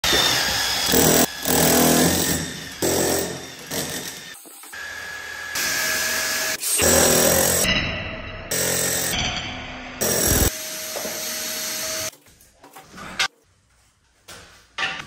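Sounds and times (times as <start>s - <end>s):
demolition hammer chiselling concrete: 0.1s - 4.4s, 6.8s - 7.6s, 10.0s - 10.5s.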